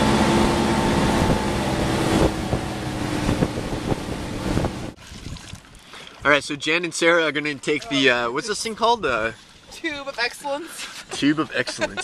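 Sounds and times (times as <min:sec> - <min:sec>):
outboard motor running: 0:00.0 - 0:05.0
wind buffeting microphone: 0:00.0 - 0:05.7
boat wake rushing: 0:00.0 - 0:06.4.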